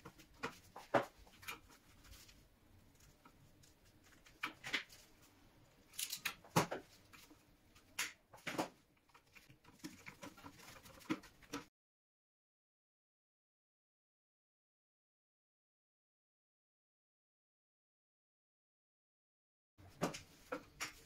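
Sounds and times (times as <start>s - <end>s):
wires rustling against plastic: 0.0s - 11.7s.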